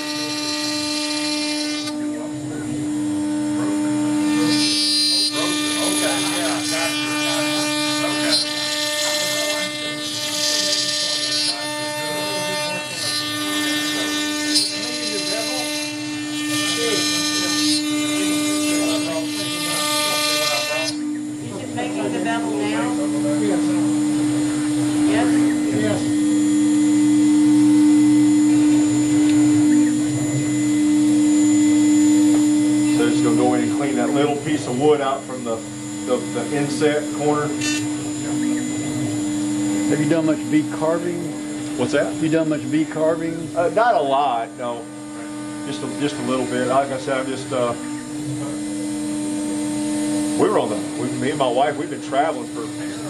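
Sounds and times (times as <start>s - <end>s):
router spindle whine: 0.0s - 53.0s.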